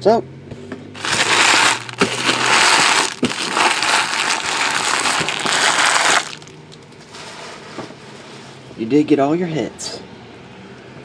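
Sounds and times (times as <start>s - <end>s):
crinkling plastic wrappers: 1.0s - 6.6s.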